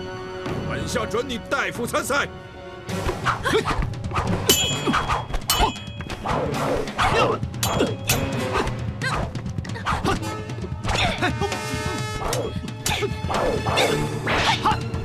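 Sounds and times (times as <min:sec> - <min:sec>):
dramatic background music: 0:00.0 - 0:15.0
metallic clangs of blades: 0:04.5 - 0:06.0, 0:07.6 - 0:08.4.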